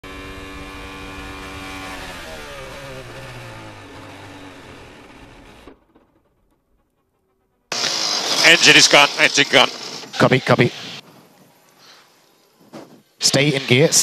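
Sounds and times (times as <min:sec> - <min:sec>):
racing car engine winding down: 0:00.0 - 0:10.6.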